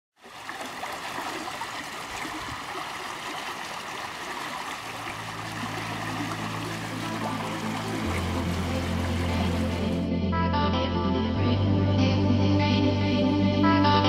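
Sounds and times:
stream running over cascade: 0:00.1 - 0:10.0.

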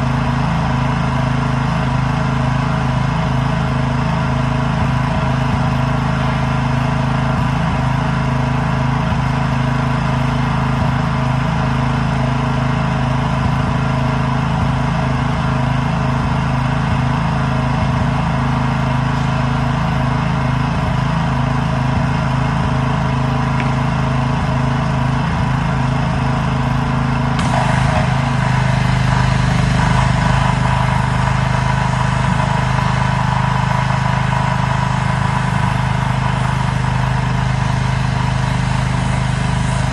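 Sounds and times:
pressure washer engine running: 0:00.0 - 0:39.9
water spray hiss: 0:27.4 - 0:39.9.

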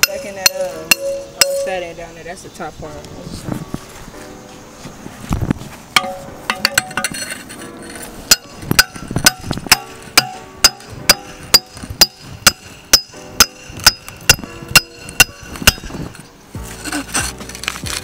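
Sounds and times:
hammer striking steel bar: 0:00.0 - 0:01.8, 0:06.0 - 0:07.3, 0:08.3 - 0:15.9.

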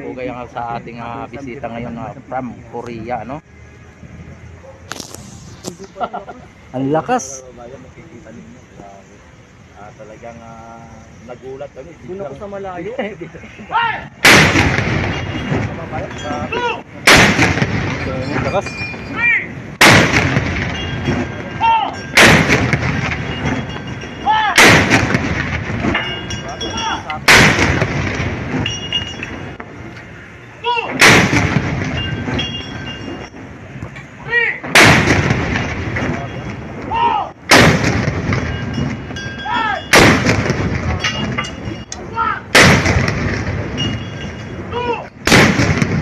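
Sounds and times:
loud gun blasts: 0:14.2 - 0:16.0, 0:17.0 - 0:18.3, 0:19.8 - 0:23.6, 0:24.6 - 0:26.0, 0:27.2 - 0:28.7, 0:30.9 - 0:32.4, 0:34.6 - 0:36.3, 0:37.5 - 0:39.0, 0:39.9 - 0:41.4, 0:42.5 - 0:43.8, 0:45.2 - 0:46.0.

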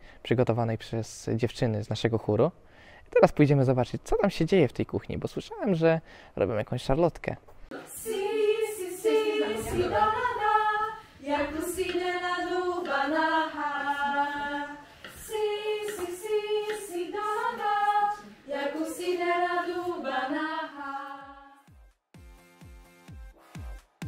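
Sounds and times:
choir singing a cappella: 0:07.7 - 0:21.7.

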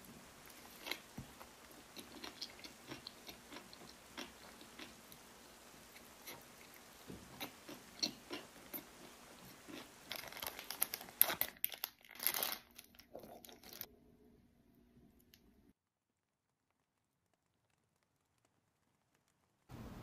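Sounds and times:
chewing with wet mouth clicks: 0:01.7 - 0:05.2, 0:06.0 - 0:10.3
plastic packet tearing and crinkling: 0:09.8 - 0:13.9.

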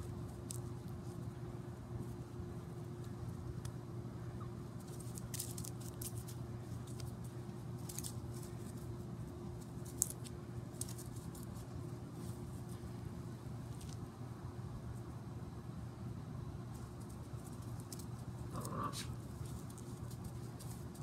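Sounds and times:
steady low hum: 0:00.0 - 0:21.0
paws rustling on grass: 0:04.7 - 0:14.1, 0:16.7 - 0:21.0.

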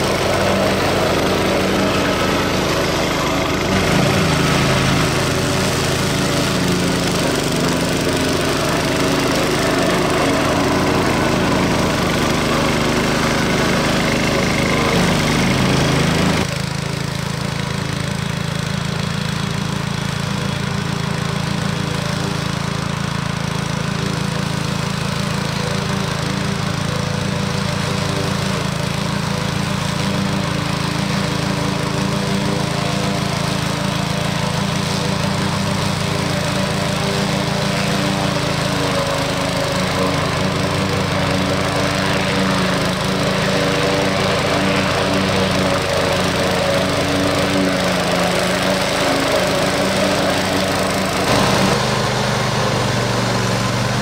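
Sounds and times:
lawn mower engine running: 0:00.0 - 0:54.0
mower blades cutting grass: 0:00.0 - 0:54.0.

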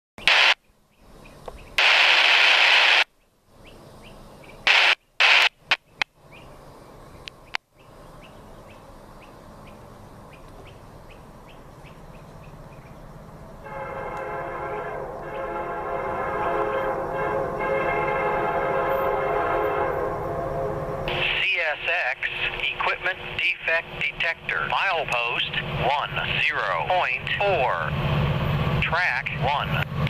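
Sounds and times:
loud bursts of hissing: 0:01.8 - 0:03.1
locomotive engine rumble: 0:05.5 - 0:30.0
locomotive air horn: 0:13.6 - 0:21.6.

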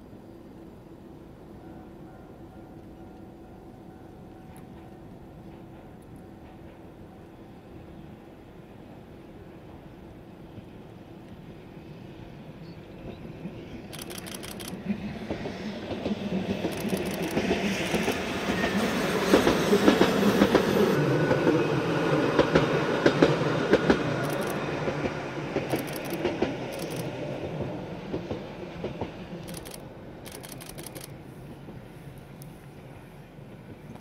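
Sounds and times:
electric train passing: 0:00.0 - 0:34.0
wheels clicking over rail joints: 0:16.0 - 0:18.6, 0:22.5 - 0:27.1.

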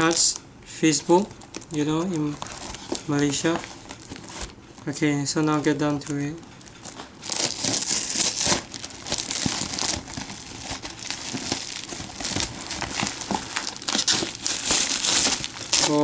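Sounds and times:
paper crinkling: 0:00.0 - 0:16.0
paper and tape ripping: 0:07.3 - 0:16.0.

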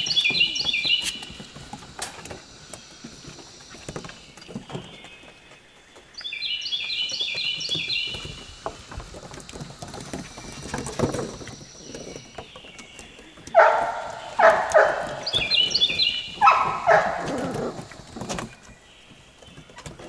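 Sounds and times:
puppy paws scrabbling on wood: 0:00.0 - 0:20.0
songbird singing: 0:00.0 - 0:20.0
puppy barks: 0:13.5 - 0:15.5, 0:16.4 - 0:17.8.

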